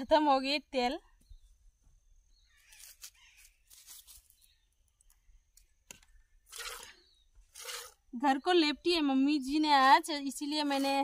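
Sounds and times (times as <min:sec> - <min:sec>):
milk squirting from cow's teats: 0:06.5 - 0:08.0.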